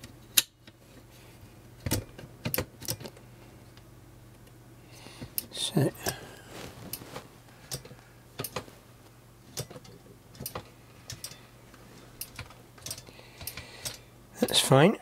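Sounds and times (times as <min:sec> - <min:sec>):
metal parts clicking and tapping: 0:09.6 - 0:11.4, 0:12.2 - 0:14.6.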